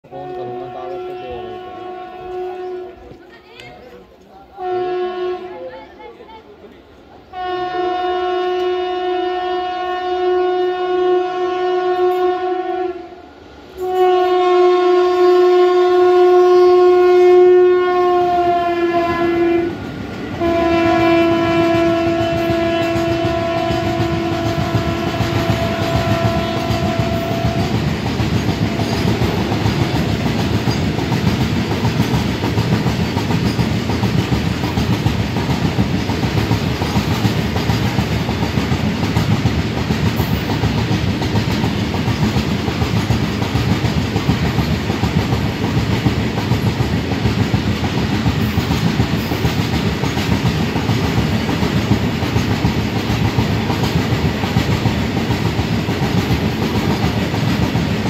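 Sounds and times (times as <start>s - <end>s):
freight train wheels rumbling: 0.0s - 58.0s
train horn: 0.1s - 3.2s, 4.6s - 5.7s, 7.3s - 27.9s, 28.6s - 30.0s
wheels clacking over rail joints: 21.8s - 58.0s.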